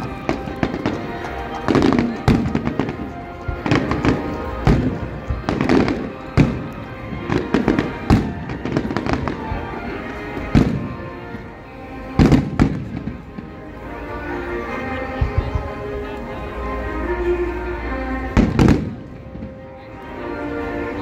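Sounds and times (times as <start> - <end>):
fireworks exploding: 0.0 - 13.6, 18.4 - 19.6
music: 0.0 - 21.0.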